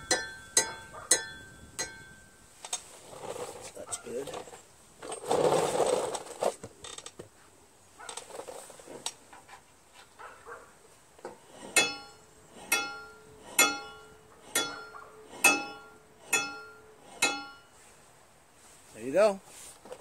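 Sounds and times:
metallic tings: 0:00.0 - 0:02.6, 0:11.6 - 0:17.8
metal blade scraping: 0:11.4 - 0:17.8.

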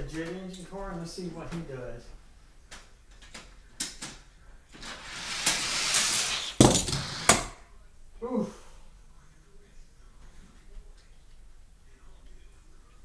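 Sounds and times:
toy car rattling down plastic track: 0:04.8 - 0:07.4.

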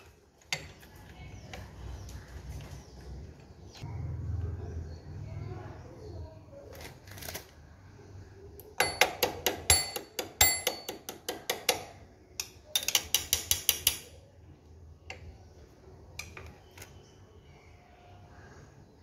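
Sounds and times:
screwdriver clicking on metal: 0:12.4 - 0:14.1.

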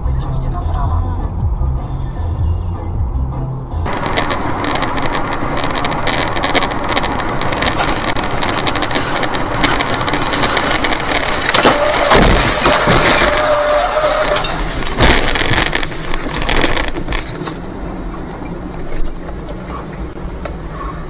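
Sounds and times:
road and engine noise: 0:00.0 - 0:21.0
dense crackle: 0:03.9 - 0:20.1.

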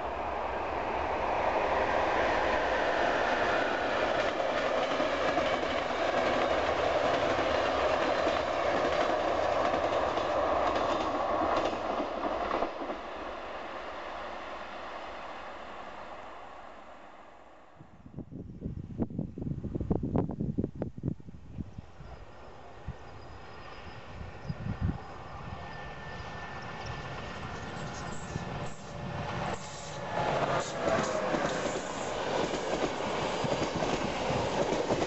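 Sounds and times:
train wheels clattering: 0:26.5 - 0:35.0.

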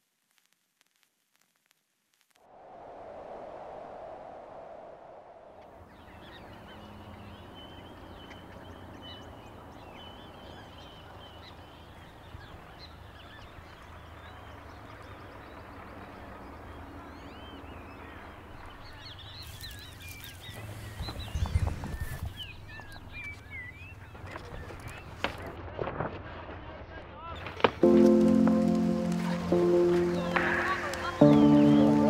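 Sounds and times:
birds chirping and calling: 0:05.8 - 0:25.5, 0:28.0 - 0:32.0.

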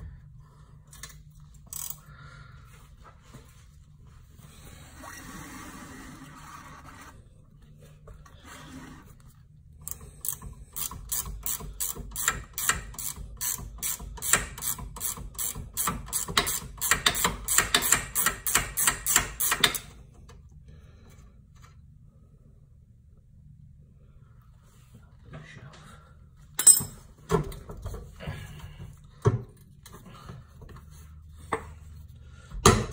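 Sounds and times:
socket ratchet clicking: 0:09.9 - 0:19.9.

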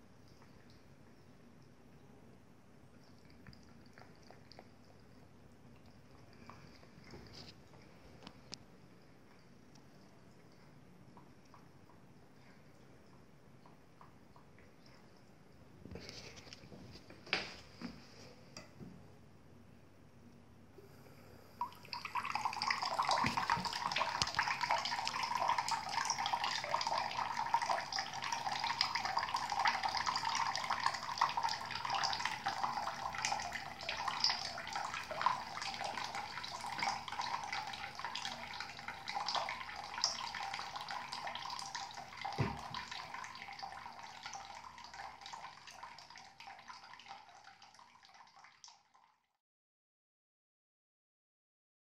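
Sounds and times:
tap water trickling into sink: 0:21.6 - 0:49.0.

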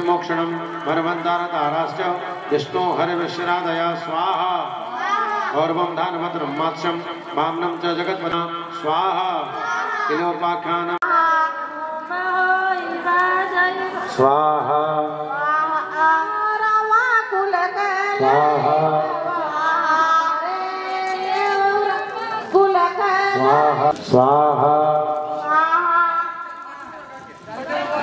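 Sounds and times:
woman singing: 0:11.0 - 0:14.2, 0:15.3 - 0:23.8, 0:25.4 - 0:28.0.

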